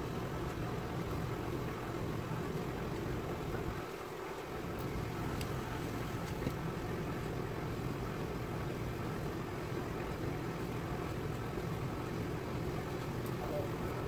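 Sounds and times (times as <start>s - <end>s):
background hum and hiss: 0.0s - 14.0s.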